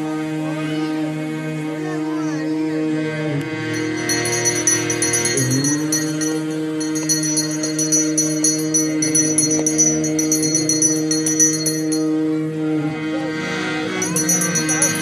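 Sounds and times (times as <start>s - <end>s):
held drone tone: 2.8s - 15.0s
bells ringing rapidly: 3.7s - 12.2s, 13.9s - 15.0s.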